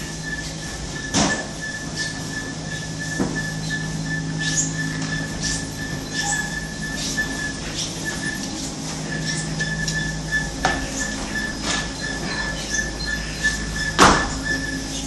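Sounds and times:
conveyor motor hum: 0:00.0 - 0:15.0
thin high whine: 0:00.0 - 0:15.0.

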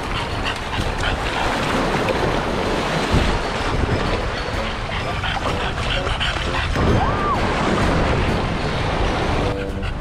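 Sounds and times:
wind rumbling on microphone: 0:00.0 - 0:10.0
surf washing up shore: 0:01.3 - 0:05.6, 0:06.4 - 0:09.7.

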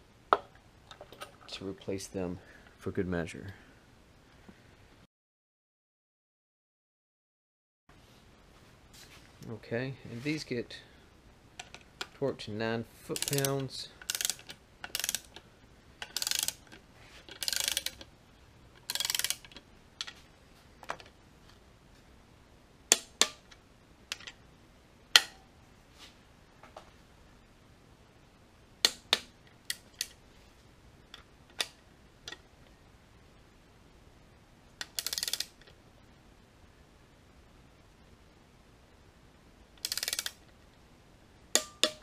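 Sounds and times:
socket ratchet spinning: 0:13.2 - 0:15.4, 0:16.0 - 0:18.0, 0:18.8 - 0:19.6, 0:34.8 - 0:35.6, 0:39.8 - 0:40.4
torque wrench clicks: 0:13.2 - 0:15.4, 0:16.0 - 0:16.8, 0:17.4 - 0:18.0, 0:18.8 - 0:19.6, 0:34.8 - 0:35.6, 0:39.8 - 0:40.4.

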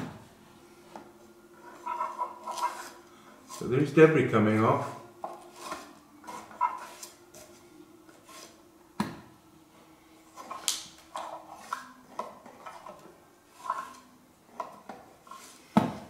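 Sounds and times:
stick scraping wood: 0:01.6 - 0:08.6, 0:10.4 - 0:14.2.

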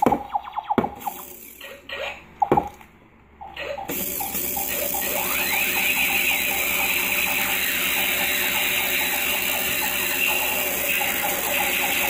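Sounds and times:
distorted electronic noise: 0:03.5 - 0:12.0
fast rattling pulse: 0:03.9 - 0:12.0.

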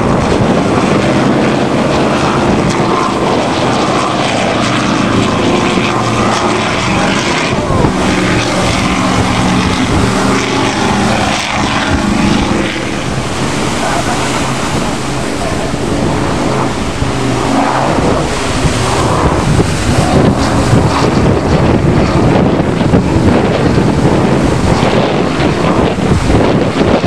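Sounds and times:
sea noise: 0:00.0 - 0:27.0
steady engine drone: 0:00.0 - 0:27.0
wind buffeting microphone: 0:00.0 - 0:27.0.

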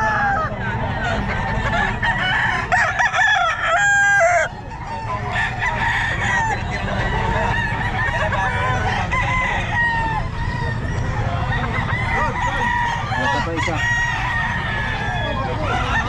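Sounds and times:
chickens clucking: 0:00.0 - 0:16.0
roosters crowing: 0:00.0 - 0:16.0.

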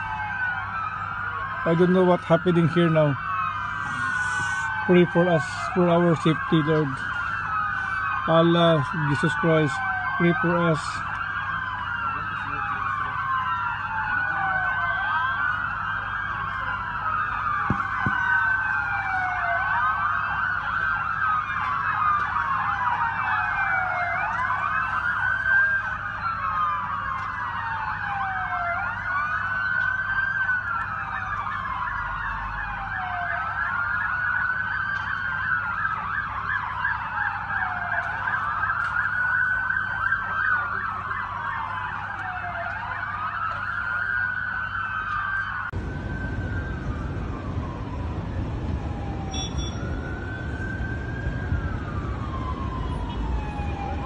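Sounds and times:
emergency sirens wailing: 0:00.0 - 0:54.0.

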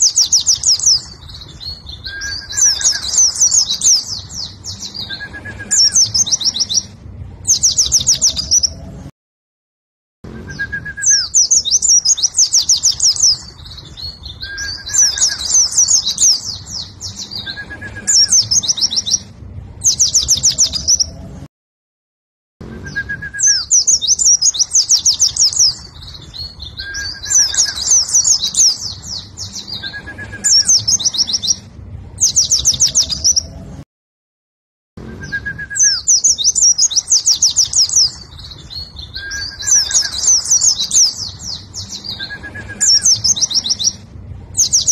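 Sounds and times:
bird trilling song: 0:00.0 - 0:09.1, 0:10.3 - 0:21.4, 0:22.6 - 0:33.7, 0:35.0 - 0:44.9
thin bird whistles: 0:01.6 - 0:06.9, 0:10.4 - 0:19.1, 0:22.7 - 0:31.4, 0:35.0 - 0:44.0.

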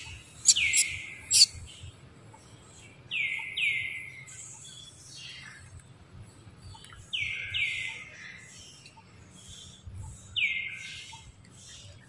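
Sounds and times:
bird calling: 0:00.0 - 0:01.6.

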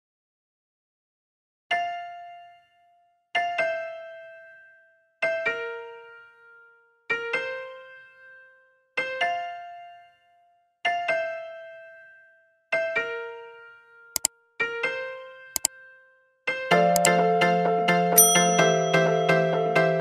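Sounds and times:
piano chords: 0:16.6 - 0:20.0.

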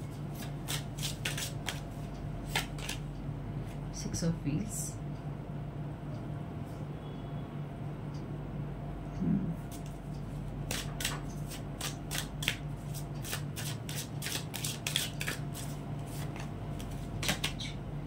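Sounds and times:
cards being shuffled: 0:00.3 - 0:03.0, 0:10.7 - 0:17.8.

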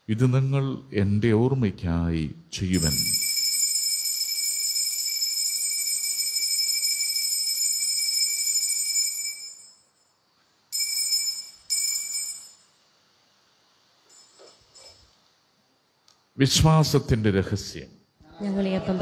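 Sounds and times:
altar bell ringing: 0:02.7 - 0:12.9, 0:14.0 - 0:15.2.

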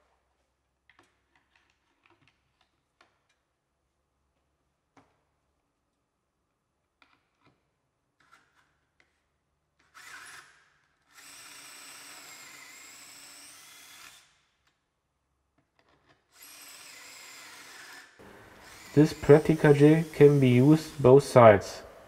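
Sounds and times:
cordless drill boring: 0:09.8 - 0:14.4, 0:16.3 - 0:21.2.

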